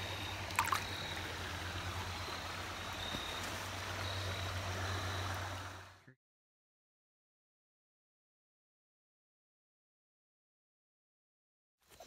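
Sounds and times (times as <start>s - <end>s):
creek water rushing: 0.0s - 6.0s.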